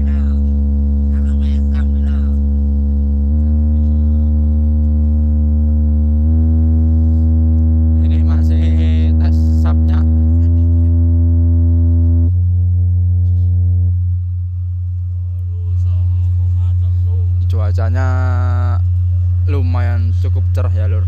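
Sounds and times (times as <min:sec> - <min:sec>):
low bass test tone: 0:00.0 - 0:21.0.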